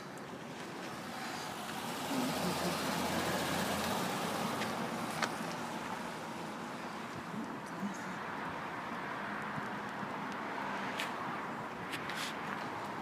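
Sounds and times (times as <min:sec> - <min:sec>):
car passing close by: 0:00.8 - 0:06.6.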